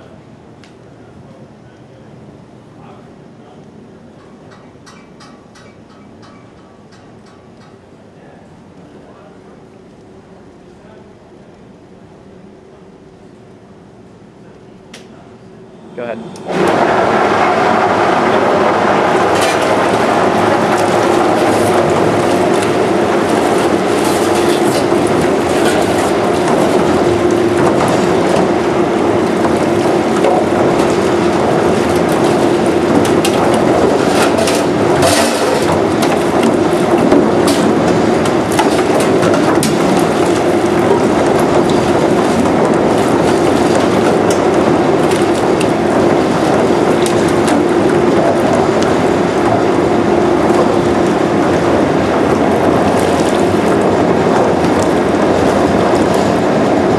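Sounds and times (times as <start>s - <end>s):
machine hum: 0.0s - 56.9s
pot washer jets churning water: 16.0s - 56.9s.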